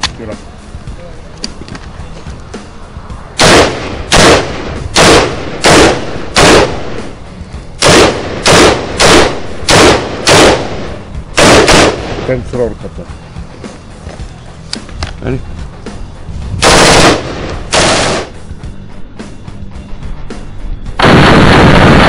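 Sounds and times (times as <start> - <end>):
rifle shots: 3.4 - 7.2, 7.8 - 12.4, 16.6 - 18.4, 21.0 - 22.0.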